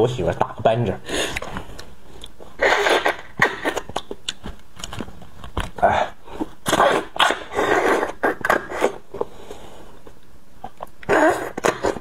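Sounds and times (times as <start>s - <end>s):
wet mouth clicks: 1.3s - 4.5s
person slurping: 2.2s - 4.2s, 5.8s - 9.0s, 10.7s - 12.0s.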